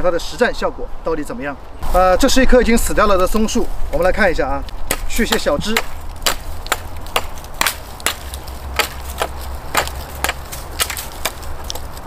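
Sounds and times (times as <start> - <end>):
axe chopping dry twigs: 4.7 - 12.0.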